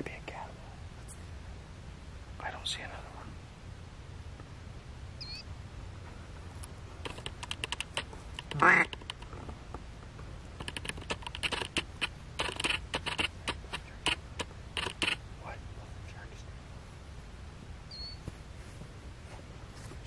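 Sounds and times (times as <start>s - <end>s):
duck quacking: 8.4s - 9.2s.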